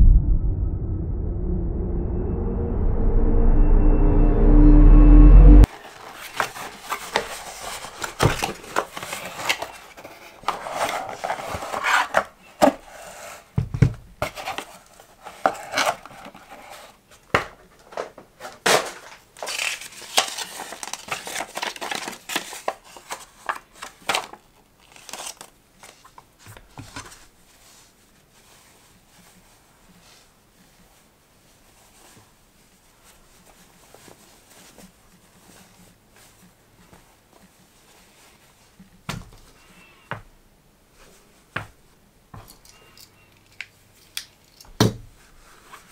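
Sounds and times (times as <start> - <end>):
packaging and paper rustling: 5.7 - 13.5, 14.2 - 29.5.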